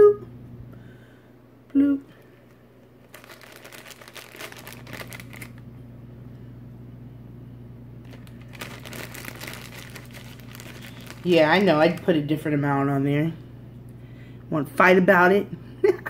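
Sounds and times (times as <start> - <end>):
plastic packaging crinkling: 2.4 - 5.7, 8.0 - 12.4.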